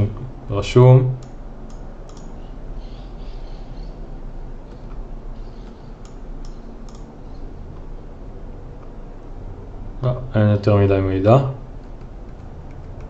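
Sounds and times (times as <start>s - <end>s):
steady low hum: 0.0s - 13.0s
computer mouse clicks: 1.2s - 2.4s, 4.6s - 7.9s, 11.8s - 13.0s.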